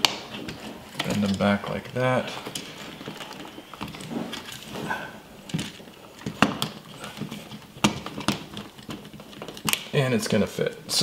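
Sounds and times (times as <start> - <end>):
wires rustling: 0.0 - 11.0
plastic clicks and knocks: 5.4 - 10.0.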